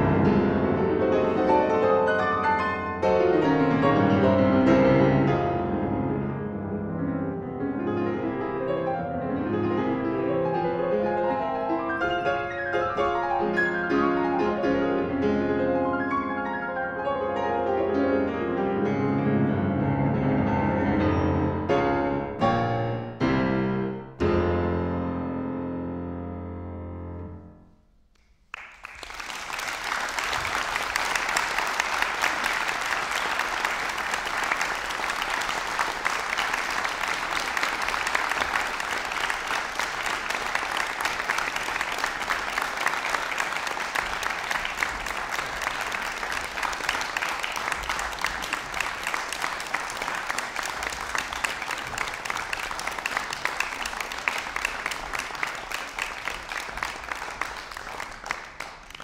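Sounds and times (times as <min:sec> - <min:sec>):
audience applauding: 0:28.2 - 0:59.0.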